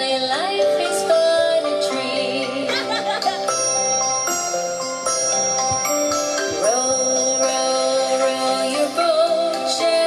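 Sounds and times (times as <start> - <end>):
children's song music: 0.0 - 10.0
bell-like chiming notes: 1.9 - 9.4.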